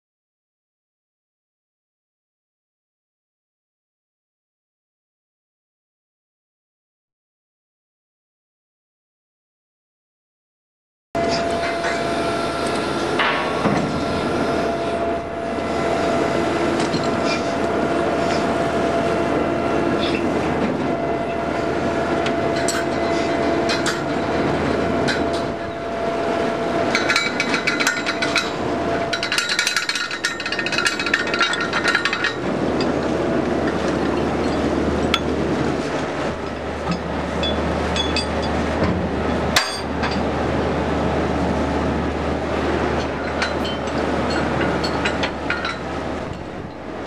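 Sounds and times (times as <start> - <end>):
deck machinery running: 11.2 - 47.0
chain clanking and clinking: 16.8 - 17.6, 22.5 - 24.2, 26.9 - 33.0, 36.9 - 38.6, 43.0 - 46.9.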